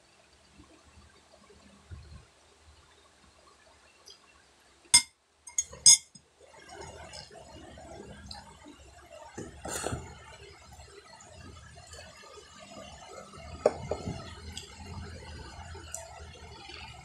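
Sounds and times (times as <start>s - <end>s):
spoon clinking on tableware: 5.0s - 6.2s
spoon scraping: 5.0s - 6.2s.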